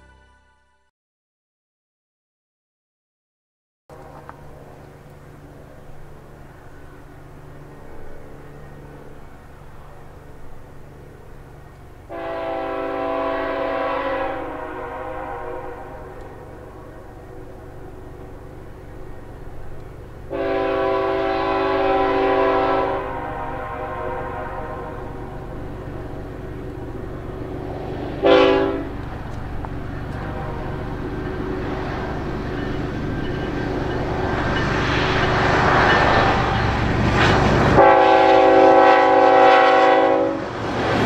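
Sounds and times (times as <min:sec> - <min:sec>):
train rumble: 0:03.9 - 0:41.0
locomotive horn blasts: 0:12.1 - 0:17.2, 0:20.3 - 0:25.4, 0:28.2 - 0:29.0, 0:30.1 - 0:31.0, 0:37.7 - 0:40.5.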